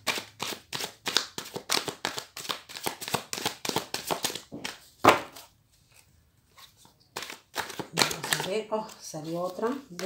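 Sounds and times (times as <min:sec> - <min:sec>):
cards being shuffled: 0:00.0 - 0:10.0.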